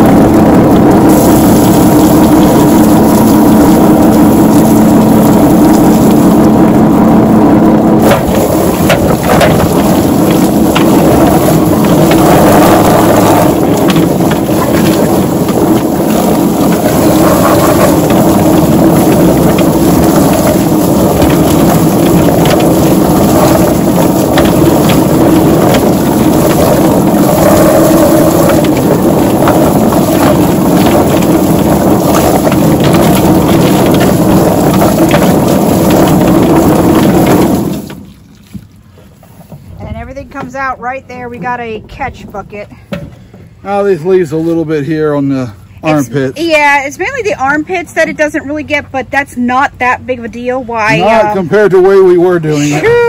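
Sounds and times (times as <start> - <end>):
chicken plucker drum tumbling: 0.0 - 38.8
hose spraying water: 0.0 - 39.2.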